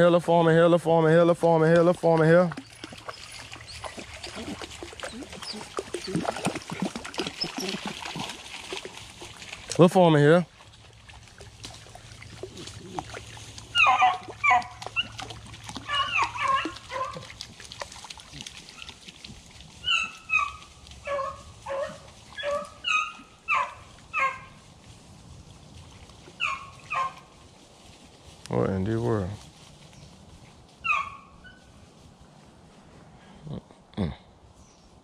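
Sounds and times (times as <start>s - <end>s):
dogs barking and yipping: 2.6s - 9.3s, 12.5s - 17.8s, 18.6s - 24.7s, 26.3s - 27.4s, 30.8s - 31.8s.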